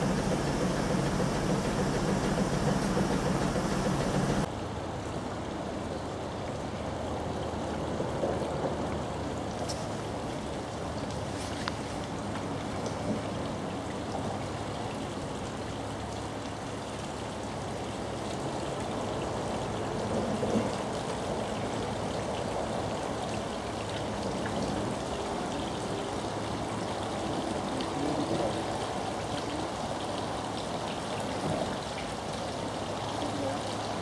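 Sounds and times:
faint steady hum: 0.0s - 4.5s
water rushing along wooden hull: 0.0s - 34.0s.

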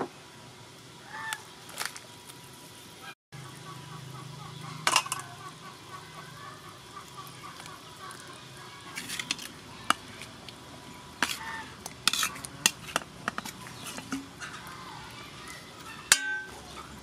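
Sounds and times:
metal ladle clinking against bowl: 4.8s - 5.3s, 12.0s - 14.7s, 16.1s - 16.6s
fish scraped into soup: 11.2s - 14.6s.

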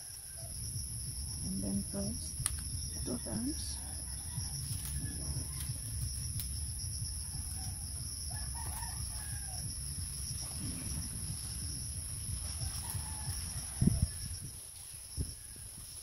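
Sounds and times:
high-pitched insect drone: 0.0s - 16.0s
low rumble: 0.5s - 15.9s
rooster crowing: 2.8s - 14.5s.

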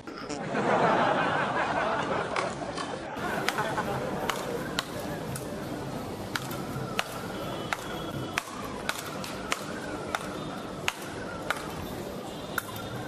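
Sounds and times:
rackets hitting ball: 2.4s - 5.6s, 6.2s - 11.9s, 12.5s - 13.0s.

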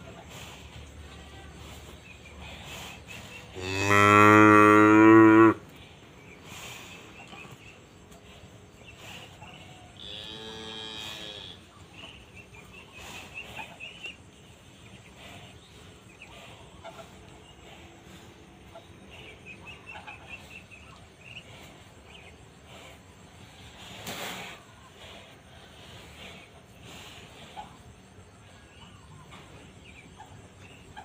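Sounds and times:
cattle mooing: 3.6s - 5.6s.

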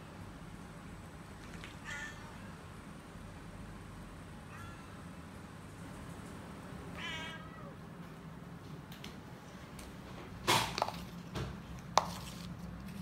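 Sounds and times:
cat meowing: 1.8s - 2.6s, 6.9s - 7.9s
plastic bowls clattering on tiles: 10.4s - 13.0s.

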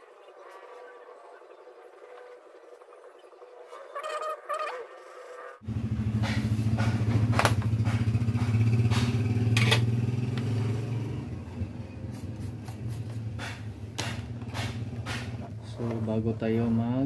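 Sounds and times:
low engine drone: 5.6s - 13.9s.

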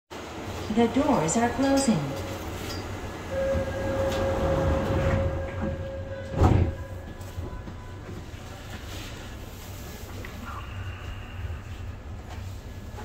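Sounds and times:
train running hum: 0.1s - 13.0s
subway doors shutting thud: 1.6s - 8.8s
steady warning tone: 3.2s - 8.0s.

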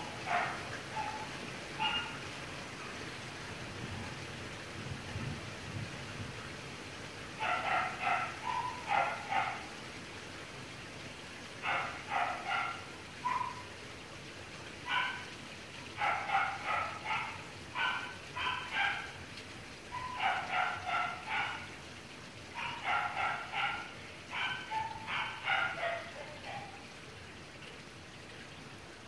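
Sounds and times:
steady rain: 0.0s - 29.0s
dog yapping: 0.2s - 2.2s, 7.4s - 9.6s, 11.6s - 13.7s, 16.0s - 19.1s, 20.0s - 21.6s, 22.6s - 26.7s.

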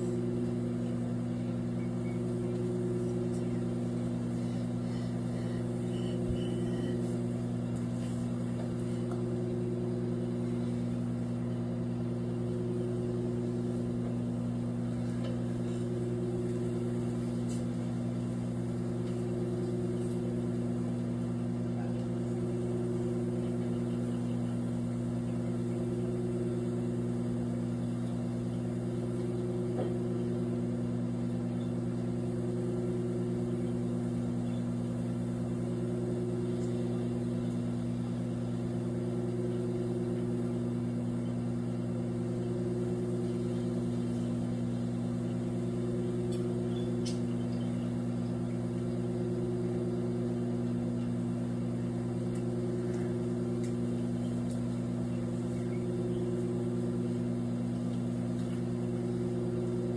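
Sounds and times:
microwave oven humming: 0.0s - 59.9s.

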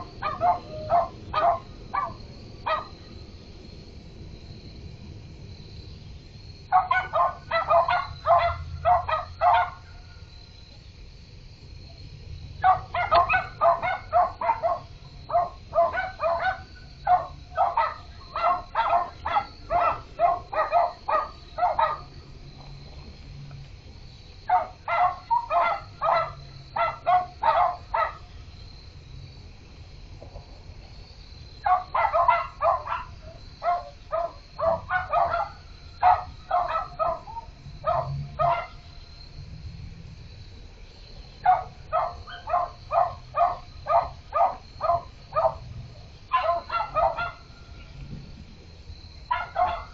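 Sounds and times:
dog barking: 0.2s - 2.9s, 6.7s - 9.8s, 12.6s - 22.1s, 24.5s - 28.2s, 31.6s - 38.8s, 41.4s - 45.6s, 46.3s - 47.5s, 49.3s - 49.9s.

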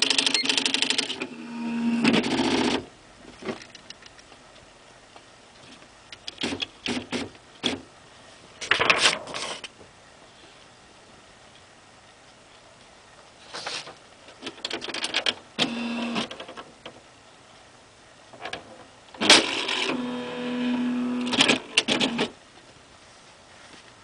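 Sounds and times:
typewriter motor hum: 0.0s - 2.9s, 15.6s - 16.5s, 19.2s - 22.4s.

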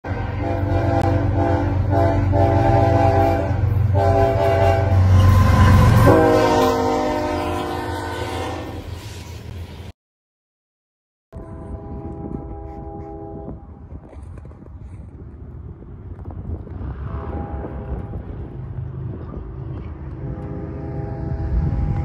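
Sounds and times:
locomotive air horn blasts: 0.1s - 9.0s, 11.4s - 13.8s, 17.2s - 18.4s, 20.2s - 22.0s.

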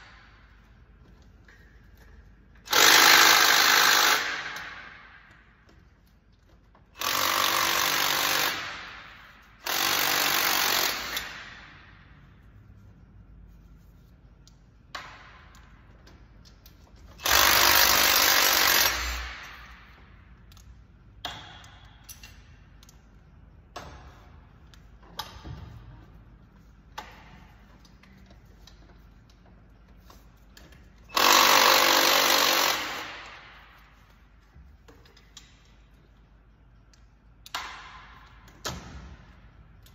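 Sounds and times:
impact wrench bursts: 2.6s - 5.1s, 6.8s - 11.8s, 17.1s - 20.0s, 31.0s - 34.0s
metallic clicks and knocks of tools: 19.4s - 25.7s, 34.8s - 39.0s, 39.6s - 39.9s.

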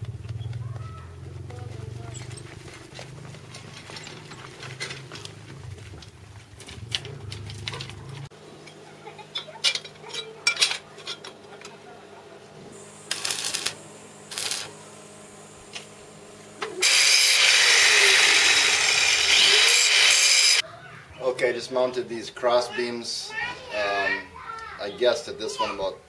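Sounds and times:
handheld power tool running: 12.8s - 14.7s, 16.7s - 20.6s.

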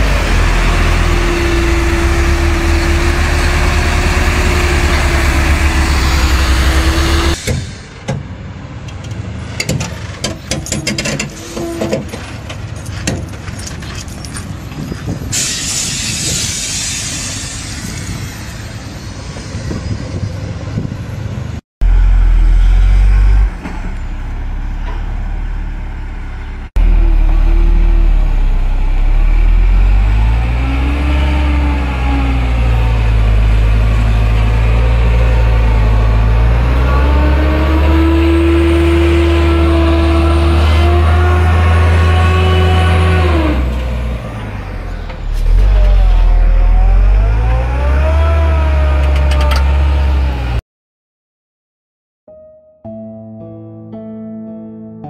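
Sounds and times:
truck diesel engine revving: 0.0s - 7.4s, 21.8s - 50.6s.

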